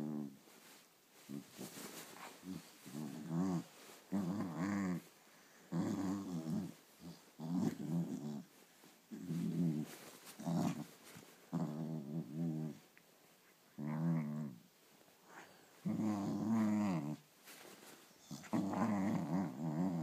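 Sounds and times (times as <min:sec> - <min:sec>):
small dog play-growling: 0:00.0 - 0:05.1, 0:05.7 - 0:08.5, 0:09.1 - 0:12.9, 0:13.7 - 0:20.0.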